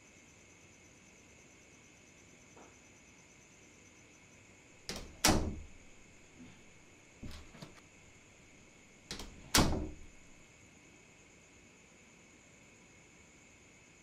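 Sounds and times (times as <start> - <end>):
door banging: 4.9 - 7.8, 9.1 - 10.4
door latch clicks: 4.9 - 7.8, 9.1 - 10.4.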